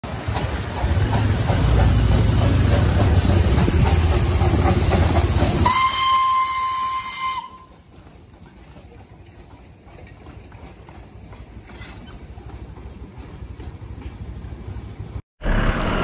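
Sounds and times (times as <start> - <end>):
steam locomotive rumbling: 0.0 - 16.0
steam whistle blast: 5.6 - 7.7.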